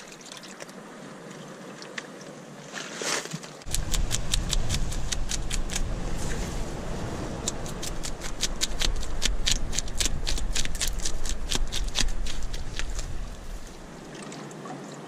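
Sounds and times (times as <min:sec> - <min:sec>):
low steady rumble: 0:03.7 - 0:14.2.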